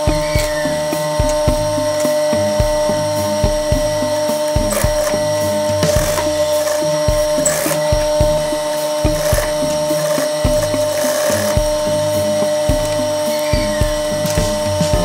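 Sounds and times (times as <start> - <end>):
sewing machine motor hum: 9.2 - 11.9.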